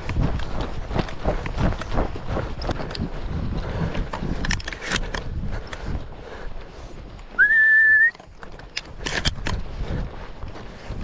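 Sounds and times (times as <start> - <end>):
high whistle: 7.4 - 8.2.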